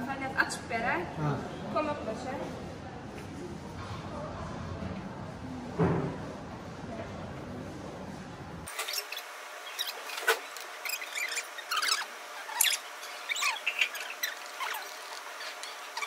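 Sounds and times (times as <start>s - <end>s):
high-pitched squeaks and chirps: 8.7s - 16.0s.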